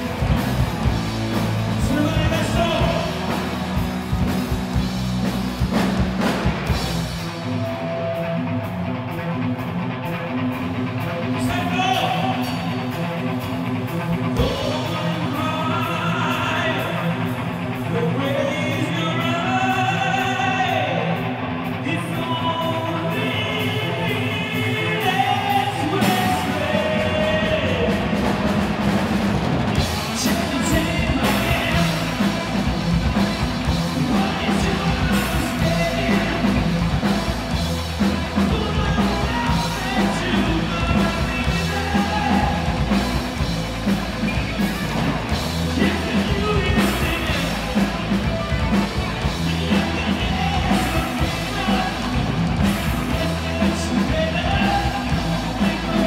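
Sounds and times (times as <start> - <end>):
steady drum beat: 0.0 - 7.5, 25.0 - 56.0
live rock band playing: 0.0 - 56.0.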